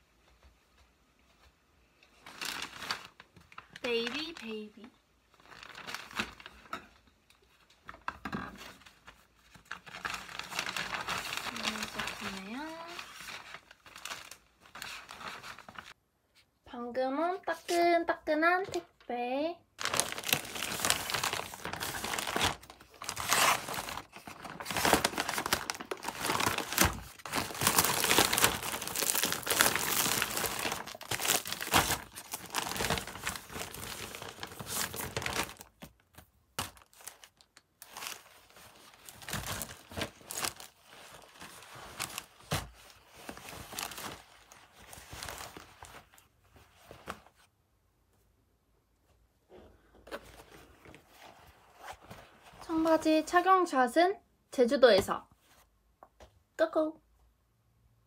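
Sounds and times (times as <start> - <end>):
plastic bag crinkling and tearing: 2.2 - 4.7, 5.3 - 6.7, 8.7 - 16.0, 19.8 - 46.2.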